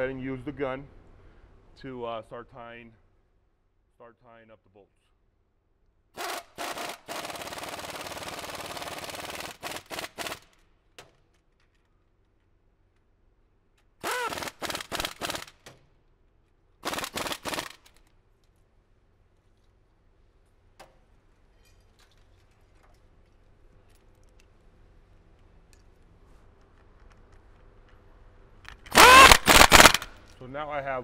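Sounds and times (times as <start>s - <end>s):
pneumatic impact gun bursts: 6.2s - 10.4s, 14.0s - 15.7s, 16.8s - 17.8s, 28.9s - 30.1s.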